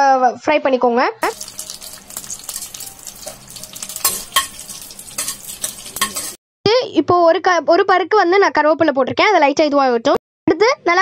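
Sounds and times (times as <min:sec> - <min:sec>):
metal spoon stirring: 0:01.2 - 0:06.4
seeds sizzling in hot oil: 0:01.2 - 0:06.4.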